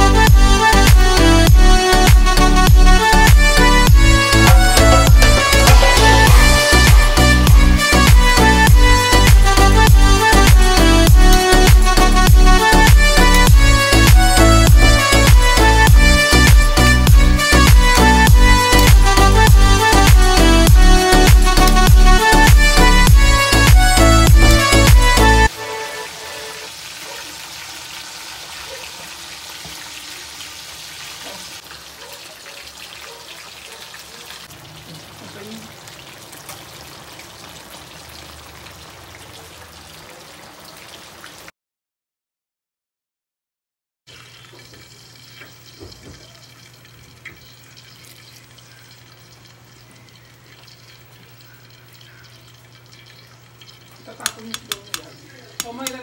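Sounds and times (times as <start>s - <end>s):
paddle knocking against pot: 4.4s - 7.2s, 54.2s - 56.0s
water running and sloshing: 25.9s - 41.5s, 44.1s - 56.0s.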